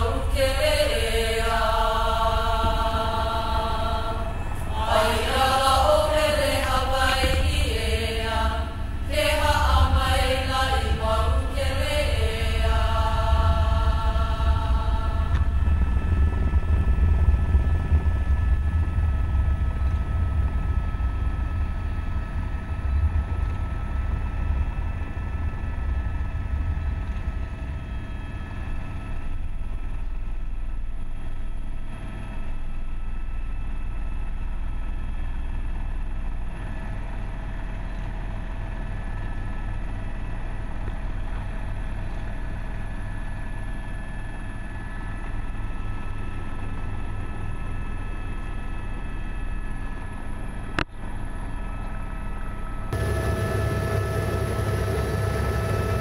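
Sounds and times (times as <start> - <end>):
high whining tones: 0.0 - 18.6, 53.0 - 56.0
helicopter engine and rotor drone: 0.0 - 56.0.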